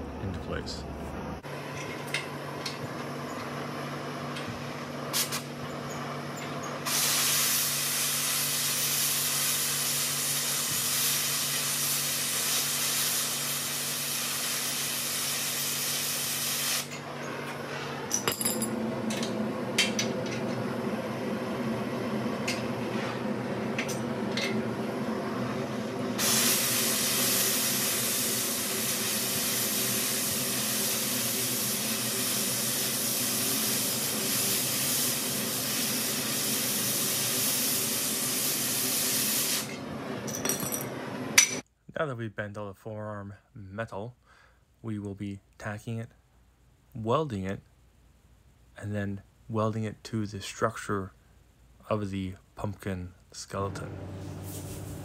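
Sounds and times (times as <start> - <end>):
torch flame hissing: 2.3 - 18.1, 18.8 - 40.3, 54.0 - 55.0.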